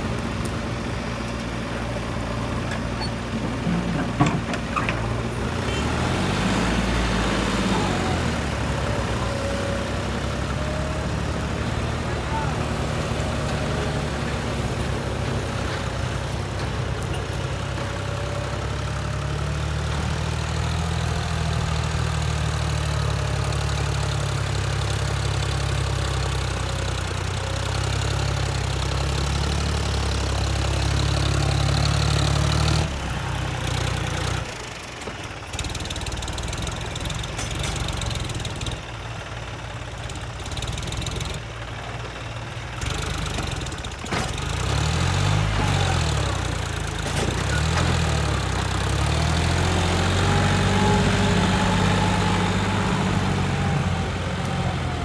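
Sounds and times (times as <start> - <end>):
backhoe diesel engine running: 0.0 - 55.0.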